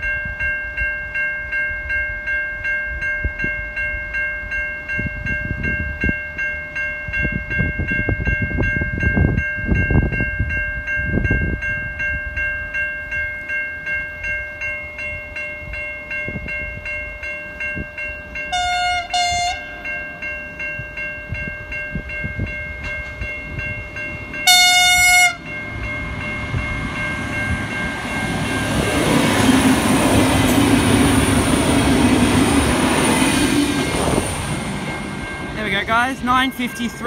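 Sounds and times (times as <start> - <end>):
level-crossing bells ringing: 0.0 - 37.0
train passing: 0.0 - 37.0
train horn: 18.5 - 19.9, 24.4 - 25.6.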